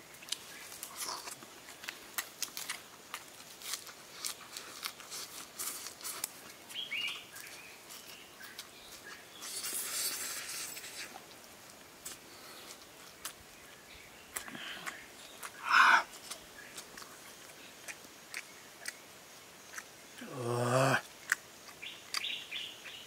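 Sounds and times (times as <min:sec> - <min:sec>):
wet lip-smacking and chewing: 0:00.2 - 0:19.0, 0:19.6 - 0:20.0, 0:21.0 - 0:22.5
bird chirp: 0:06.7 - 0:10.0, 0:21.8 - 0:23.0.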